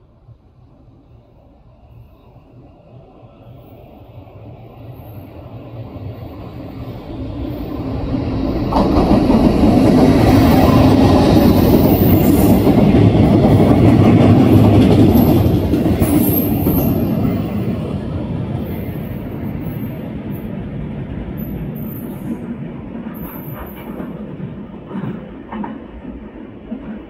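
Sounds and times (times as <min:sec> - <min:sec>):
freight train rumbling past: 0:00.0 - 0:27.0.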